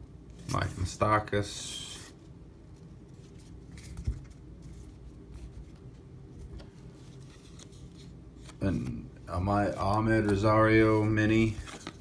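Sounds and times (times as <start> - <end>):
low steady hum: 0.0 - 12.0
trading cards flipped by hand: 3.2 - 9.0, 9.8 - 12.0.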